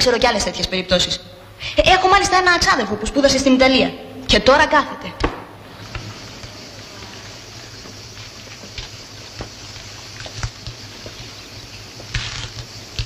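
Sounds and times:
low hum and hiss: 0.0 - 13.0
film clicks and crackles: 7.8 - 13.0.

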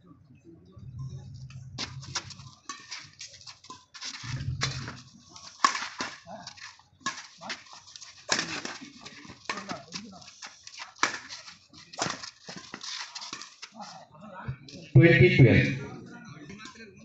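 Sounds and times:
low hum: 0.7 - 2.0.

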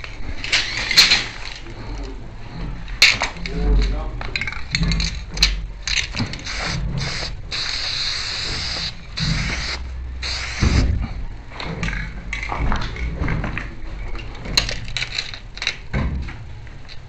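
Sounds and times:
sharp clicks and knocks: 0.0 - 7.4
spray paint can hissing: 6.2 - 11.0.

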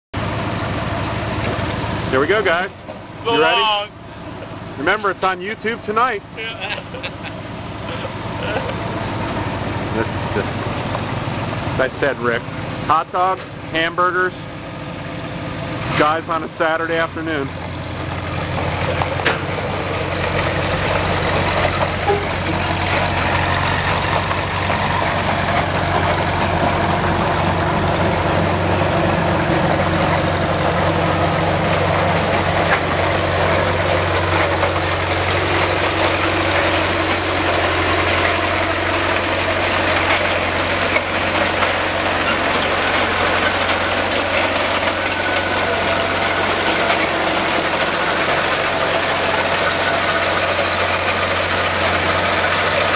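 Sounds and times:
heavy vehicle engine running: 0.1 - 52.9.

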